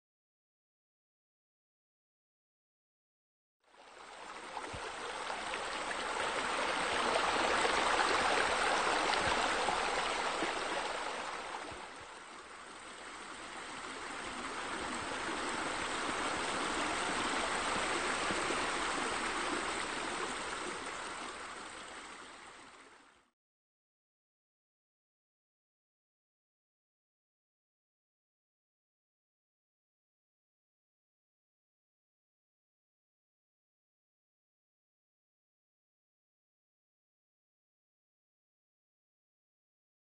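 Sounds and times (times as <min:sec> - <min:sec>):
running water: 0:03.7 - 0:23.3.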